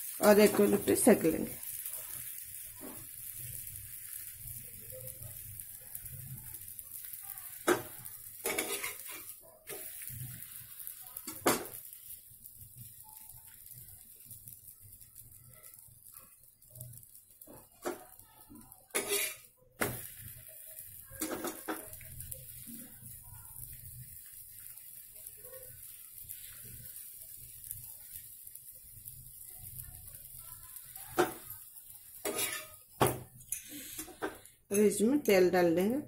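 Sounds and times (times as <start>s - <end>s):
spatula scraping on iron griddle: 7.6s - 11.9s, 18.9s - 20.4s, 21.1s - 23.0s, 32.1s - 34.5s.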